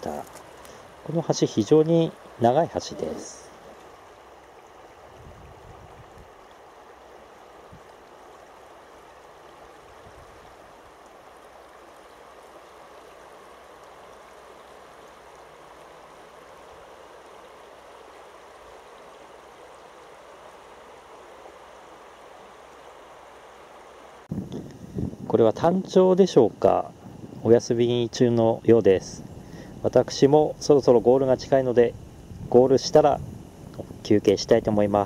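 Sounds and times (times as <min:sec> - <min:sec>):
river flowing over gravel: 0:00.0 - 0:24.3.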